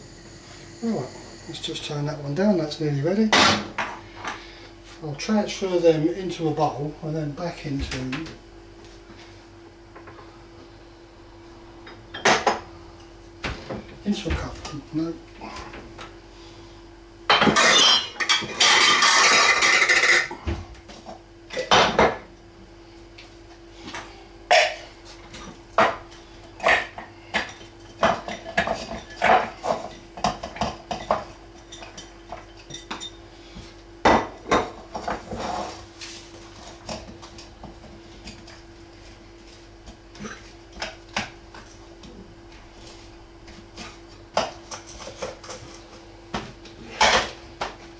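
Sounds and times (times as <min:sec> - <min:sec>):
electric food chopper running: 0:00.0 - 0:01.6.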